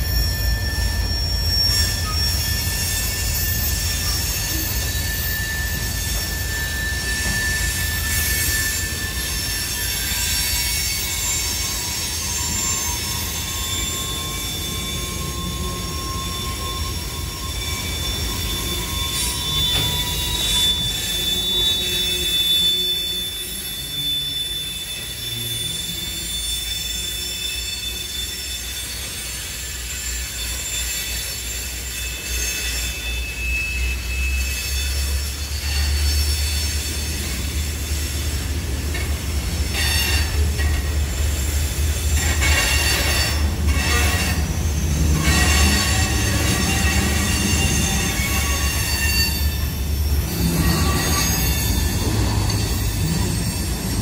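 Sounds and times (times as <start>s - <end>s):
high-pitched wheel squeal: 0.0s - 54.0s
train wheels rumbling on rail: 0.0s - 54.0s.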